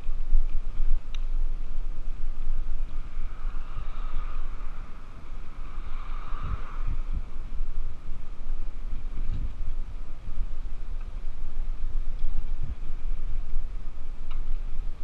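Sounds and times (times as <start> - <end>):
road noise: 0.0 - 15.0
wind buffeting microphone: 0.0 - 15.0
car passing: 2.3 - 10.4.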